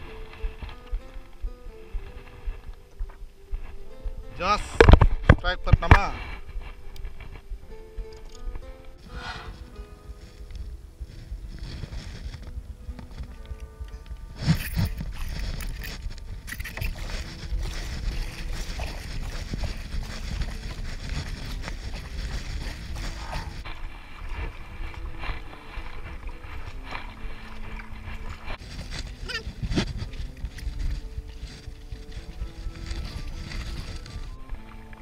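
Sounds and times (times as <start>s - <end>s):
wind rumble on microphone: 0.0s - 35.0s
paddle splashing in water: 16.8s - 30.7s.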